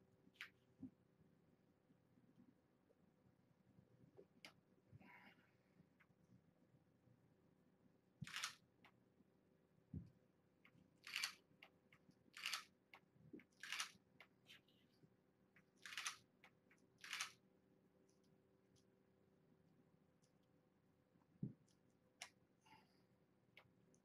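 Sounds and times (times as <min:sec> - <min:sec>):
camera shutter snapping: 0:08.3 - 0:08.6, 0:11.0 - 0:11.4, 0:15.8 - 0:16.2, 0:17.0 - 0:17.4.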